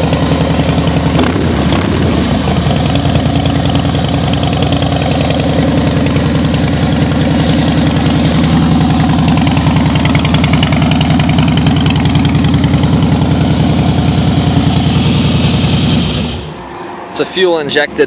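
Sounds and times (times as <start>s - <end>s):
motorcycle engine idling: 0.0s - 16.5s.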